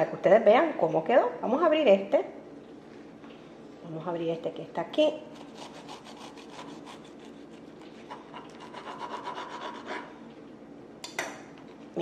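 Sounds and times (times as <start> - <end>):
knife sawing through crisp wrap: 5.4 - 10.1.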